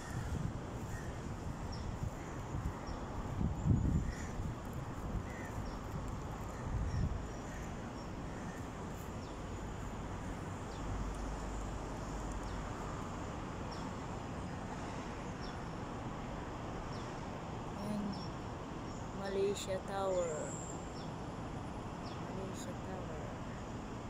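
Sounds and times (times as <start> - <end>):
city background noise: 0.0 - 24.0.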